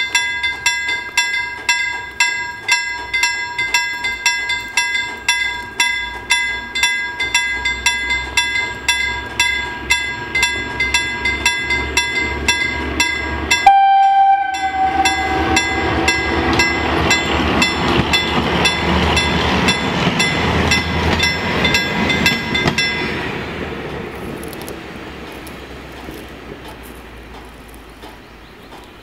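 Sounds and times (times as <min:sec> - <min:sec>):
level-crossing bell ringing: 0:00.0 - 0:23.2
train engine and wheels passing: 0:00.0 - 0:29.0
train horn blast: 0:13.5 - 0:17.0.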